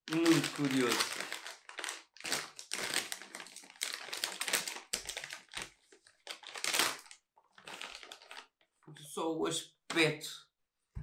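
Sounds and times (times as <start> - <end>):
plastic bag crinkling and tearing: 0.1 - 8.6.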